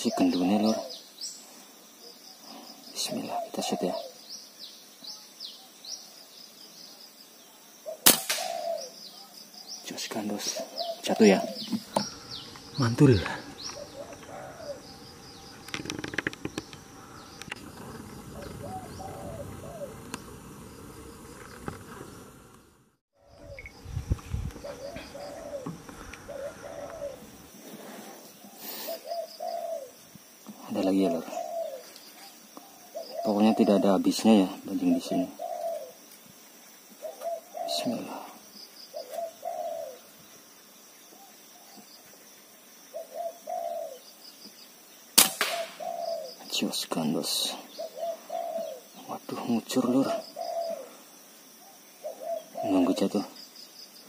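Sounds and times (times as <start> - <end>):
dove cooing: 0.0 - 1.0, 2.5 - 4.2, 7.8 - 20.2, 24.5 - 27.6, 28.3 - 30.0, 30.8 - 34.1, 34.8 - 36.0, 37.0 - 40.1, 42.9 - 44.1, 45.4 - 46.6, 47.2 - 53.3
insects buzzing: 0.0 - 54.0
small birds chirping: 0.0 - 54.0.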